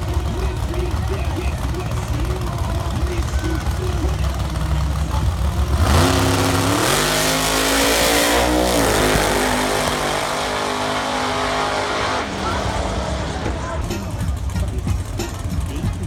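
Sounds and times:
drag car engine accelerating: 0:00.0 - 0:16.0.

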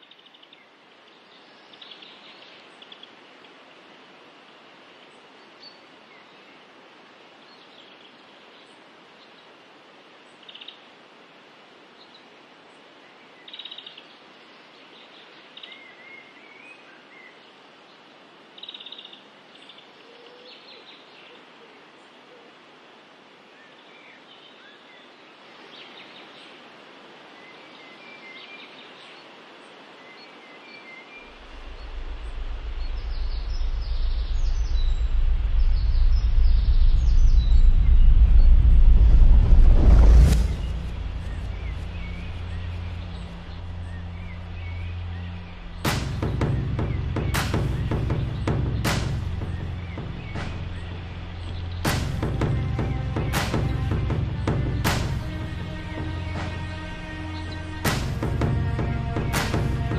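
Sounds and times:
stream rushing over rocks: 0:00.0 - 0:59.9
birds chirping: 0:27.5 - 0:39.4, 0:40.0 - 0:59.9.

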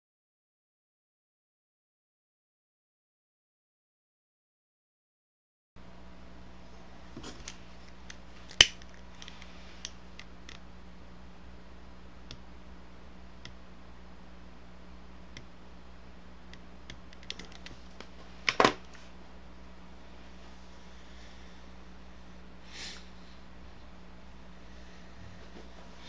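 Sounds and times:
electrical hum: 0:05.8 - 0:26.0
small clicks and knocks: 0:16.5 - 0:19.0.

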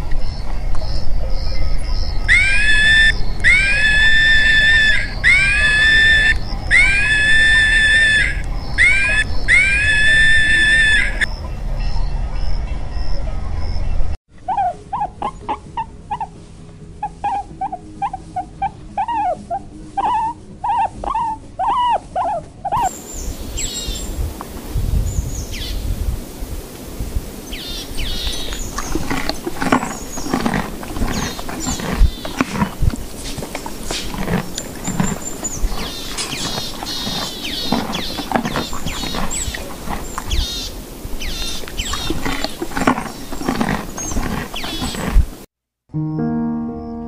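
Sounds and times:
monkeys calling: 0:02.3 - 0:11.3
rustling: 0:28.3 - 0:45.5.

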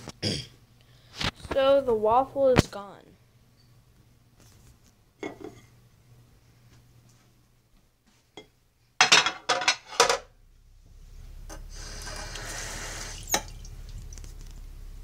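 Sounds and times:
plate clattering in sink: 0:09.0 - 0:10.3
tap water running: 0:11.5 - 0:14.6.

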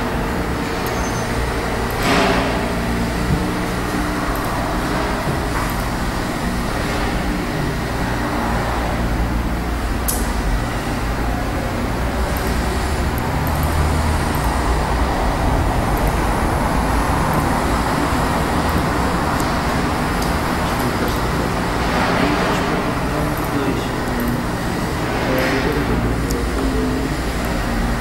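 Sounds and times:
sharp click: 0:10.0 - 0:10.3.

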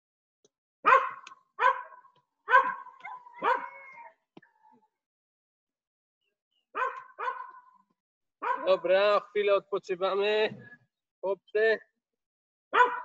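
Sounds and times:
dog barking: 0:00.8 - 0:04.1, 0:06.8 - 0:07.8, 0:08.4 - 0:08.8, 0:12.7 - 0:13.0.

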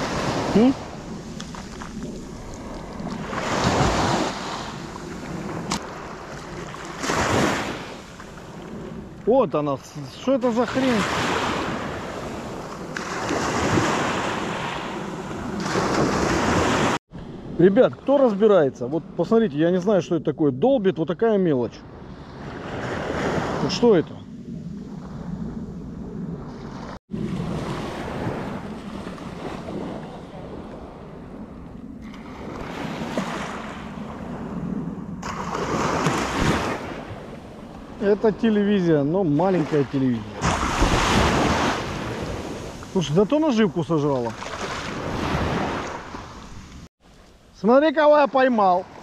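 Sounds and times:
wind buffeting microphone: 0:00.0 - 0:10.1
wind on microphone: 0:00.0 - 0:10.1, 0:21.8 - 0:38.5, 0:40.2 - 0:43.3
sea surf washing on shore: 0:00.0 - 0:18.7, 0:26.5 - 0:46.9.

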